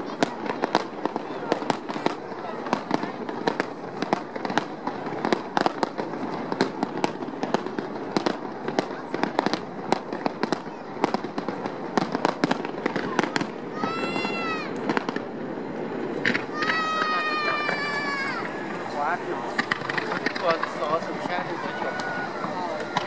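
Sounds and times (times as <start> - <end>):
fireworks bangs and crackles: 0.0 - 23.0.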